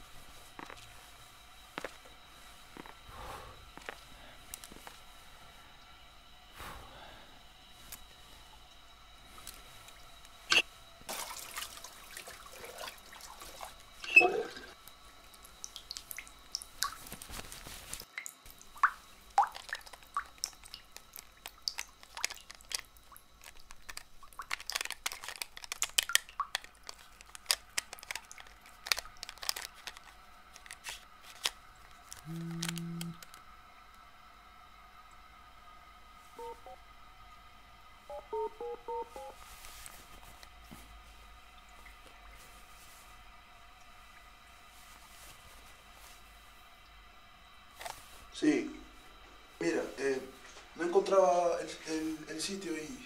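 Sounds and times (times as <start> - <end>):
tap water running: 8.5 - 32.2
low electronic tone: 14.0 - 14.8, 32.2 - 33.2, 36.4 - 36.9, 38.1 - 39.4.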